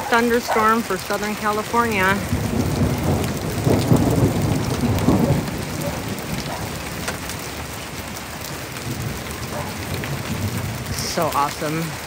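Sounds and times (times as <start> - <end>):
low rumble of thunder: 0.0 - 12.0
steady rain: 0.0 - 12.0.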